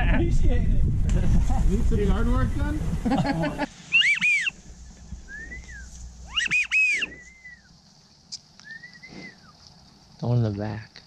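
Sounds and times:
duck whistles: 3.9 - 4.6, 5.2 - 7.7, 8.6 - 9.6.

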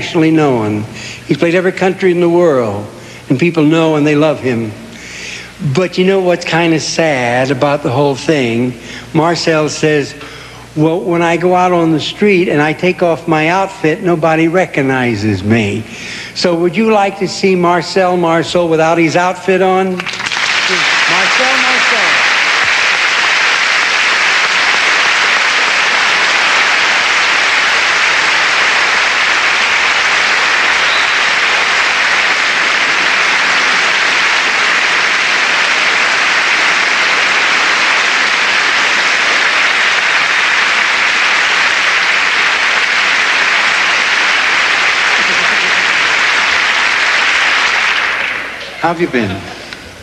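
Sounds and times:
large audience applauding: 20.0 - 49.3.

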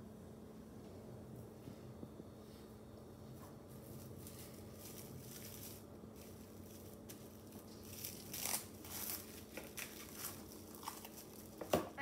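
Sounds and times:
plastic wrap crinkling: 3.7 - 12.0.

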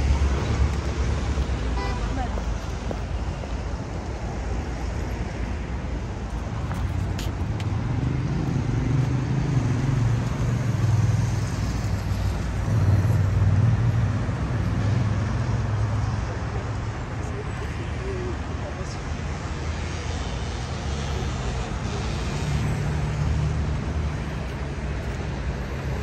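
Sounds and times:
road noise: 0.0 - 26.0.

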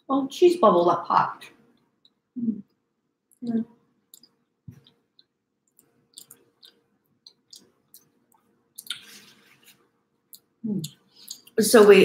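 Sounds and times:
chewing clicks: 4.1 - 9.1
lip smacks: 4.1 - 9.3.

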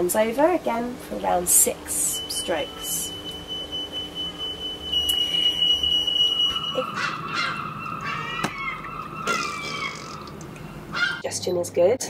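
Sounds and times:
smoke alarm tone: 1.2 - 8.0
seagulls squawking: 6.0 - 11.2.

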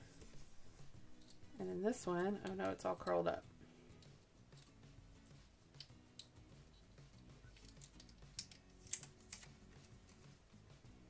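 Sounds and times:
faint background music: 0.0 - 11.0.

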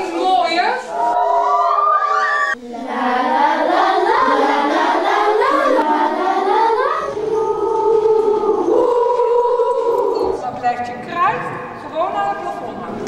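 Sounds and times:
children's choir singing: 1.0 - 10.6.

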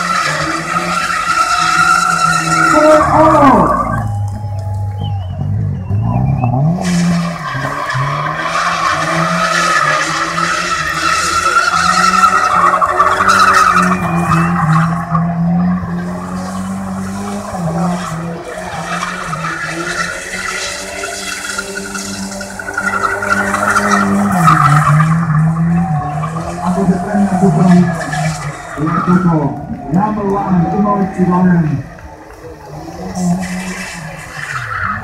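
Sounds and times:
tyres squealing: 0.0 - 4.1, 5.0 - 31.6
car engine at high revs: 0.0 - 35.0.

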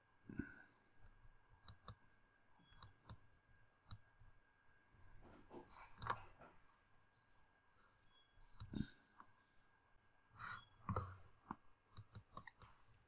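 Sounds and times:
faint computer mouse clicks: 1.6 - 2.0, 2.6 - 3.2, 5.5 - 6.3, 11.9 - 12.8.

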